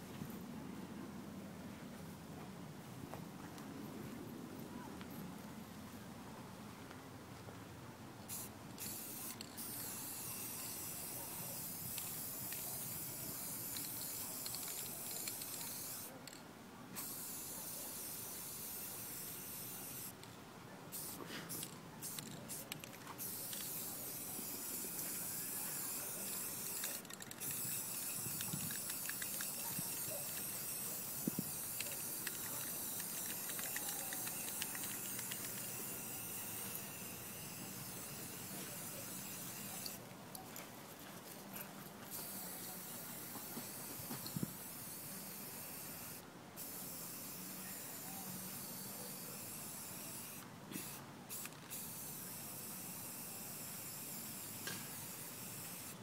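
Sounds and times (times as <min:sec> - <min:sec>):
spray paint can hissing: 0:08.3 - 0:16.1, 0:17.0 - 0:20.2, 0:20.9 - 0:40.0, 0:42.1 - 0:56.0.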